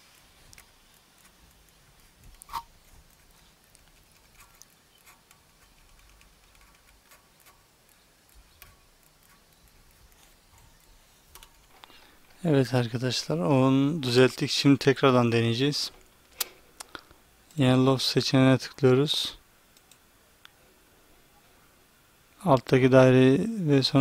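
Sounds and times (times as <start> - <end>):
computer mouse clicks: 2.3 - 12.0, 19.7 - 20.0.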